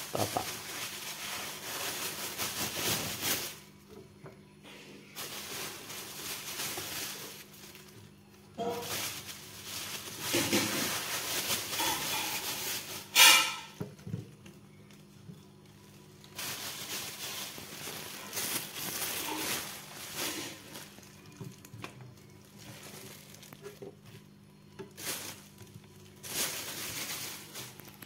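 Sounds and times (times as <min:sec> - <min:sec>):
mushrooms rustling on scale: 0:00.0 - 0:03.8, 0:04.7 - 0:13.8, 0:14.5 - 0:28.0
plastic bag rustling: 0:00.0 - 0:03.9, 0:04.7 - 0:28.0.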